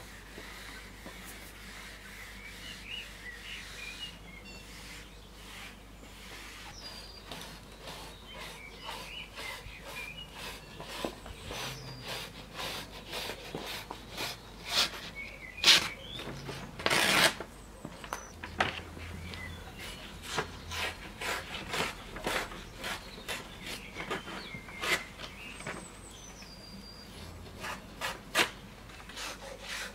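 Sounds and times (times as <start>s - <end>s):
paper rubbing and rustling: 0.0s - 19.2s
paper tearing: 15.6s - 17.5s.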